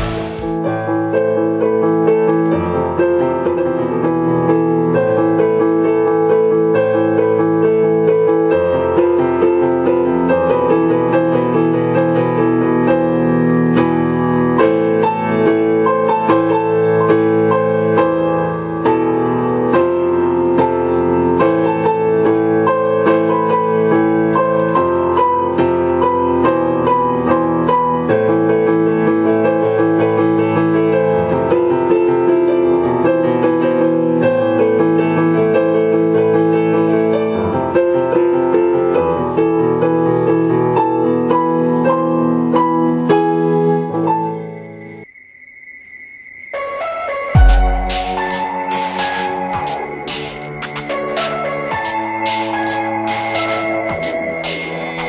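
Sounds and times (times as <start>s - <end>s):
piano music: 0.0s - 45.1s, 46.4s - 55.0s.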